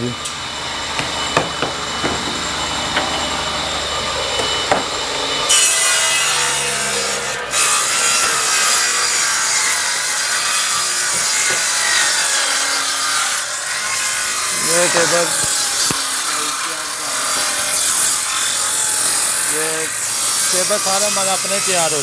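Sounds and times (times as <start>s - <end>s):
table saw cutting wood: 0.0s - 22.0s.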